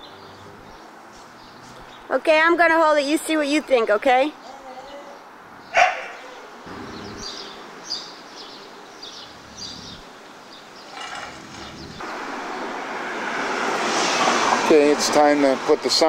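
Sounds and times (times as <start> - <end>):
approaching car: 5.3 - 16.0.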